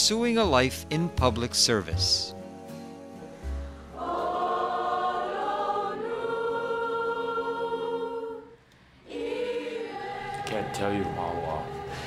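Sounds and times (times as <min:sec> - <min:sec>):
girls' choir singing held chords: 0:03.8 - 0:12.0.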